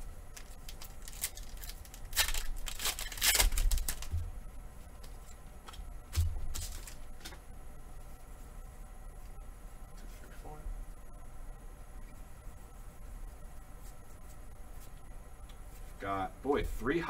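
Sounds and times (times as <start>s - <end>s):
cards being handled: 0.3s - 4.2s
foil wrapper crinkling: 0.3s - 4.2s, 6.5s - 7.1s.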